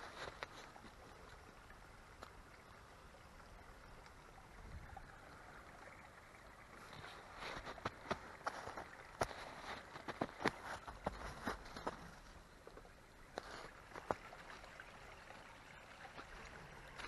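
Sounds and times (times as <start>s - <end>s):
crunching footsteps on trail: 7.0s - 14.3s.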